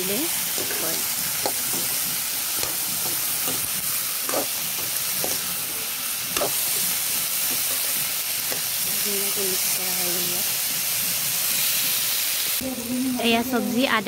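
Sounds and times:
vegetables sizzling in hot oil: 0.0s - 14.0s
metal spatula scraping pan: 0.5s - 8.8s.

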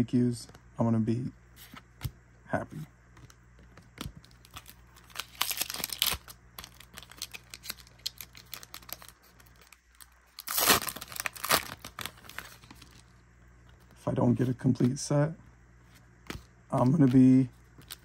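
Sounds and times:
foil wrapper crinkling and tearing: 4.2s - 13.0s.

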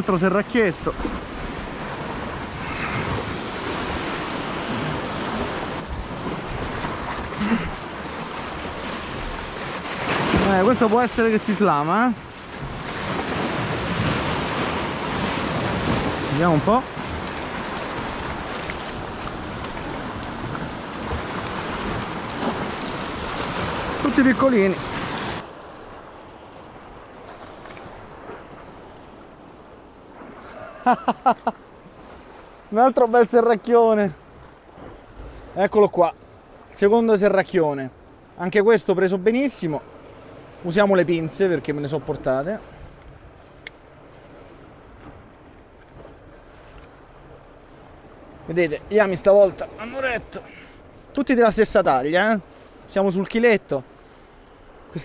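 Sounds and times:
sea waves breaking on rocks: 0.0s - 55.0s
wind on microphone: 1.0s - 7.4s.

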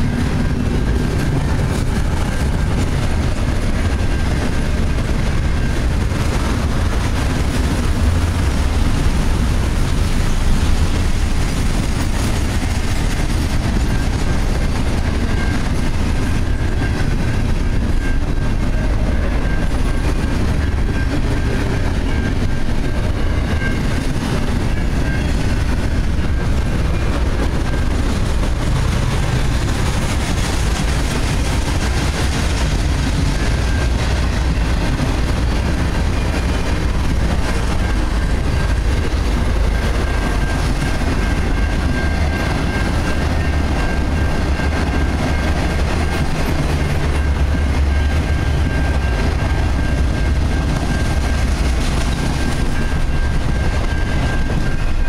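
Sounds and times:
freight cars rumbling on rails: 0.0s - 55.0s.

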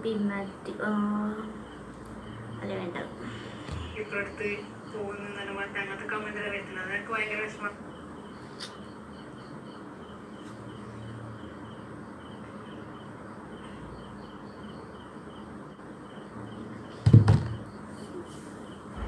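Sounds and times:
faint high chirping: 0.0s - 19.0s
phone set down on table: 17.1s - 17.6s.

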